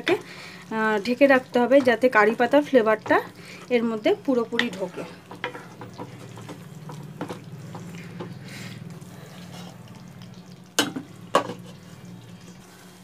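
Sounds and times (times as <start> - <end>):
light sizzle: 0.0 - 13.0
spatula scraping a pan: 4.6 - 9.8, 11.4 - 13.0.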